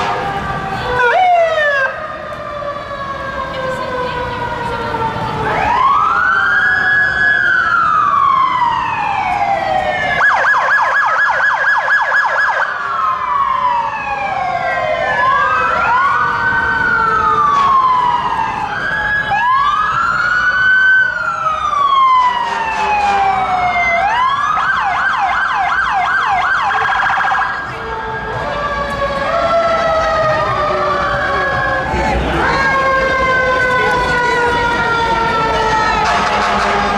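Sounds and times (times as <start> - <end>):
police sirens wailing: 0.0 - 36.9
sirens fast yelp: 0.0 - 36.9.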